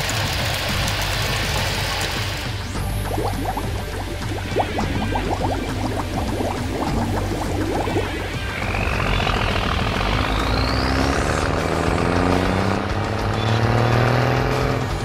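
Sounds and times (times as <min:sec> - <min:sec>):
background music: 0:00.2 - 0:15.0
high rising sweep: 0:02.8 - 0:12.5
cartoon truck engine revving: 0:02.9 - 0:15.0.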